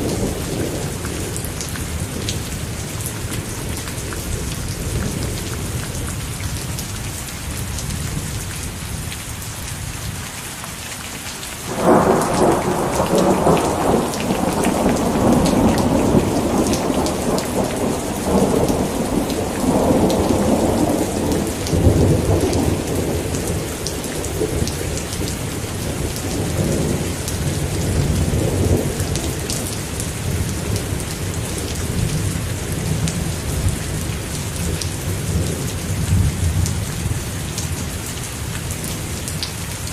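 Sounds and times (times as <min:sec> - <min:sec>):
steady rain pattering: 0:00.0 - 0:39.9
rumbling thunder clap: 0:11.7 - 0:29.6.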